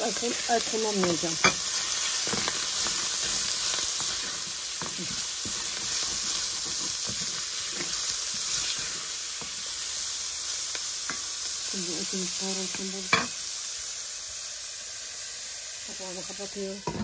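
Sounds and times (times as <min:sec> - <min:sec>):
meat sizzling in a pan: 0:00.0 - 0:17.0
wooden spoon scraping a pan: 0:01.0 - 0:09.7.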